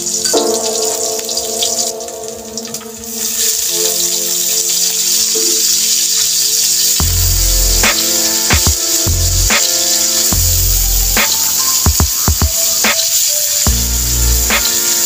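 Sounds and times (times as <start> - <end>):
background music with held notes: 0.0 - 5.8, 7.0 - 15.0
garlic sizzling in hot oil: 0.0 - 15.0.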